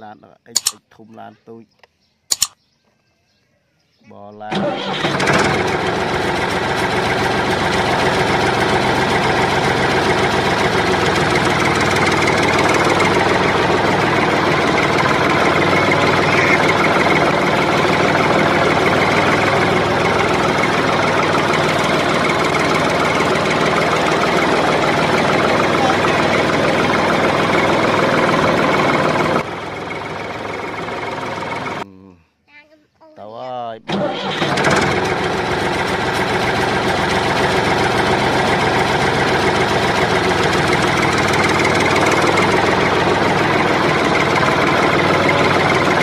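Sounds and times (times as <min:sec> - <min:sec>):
truck engine idling: 0:04.2 - 0:31.8, 0:33.3 - 0:46.0.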